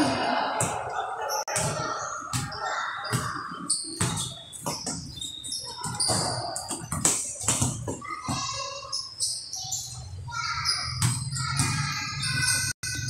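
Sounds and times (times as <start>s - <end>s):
sneakers squeaking on floor: 0.5s - 13.0s
basketball bouncing on court: 1.5s - 8.5s, 10.9s - 12.5s.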